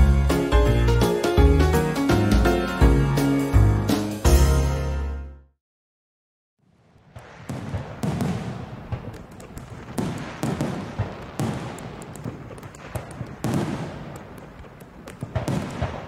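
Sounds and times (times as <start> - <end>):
firework booms: 6.6 - 16.0
firework crackling pops: 6.7 - 16.0.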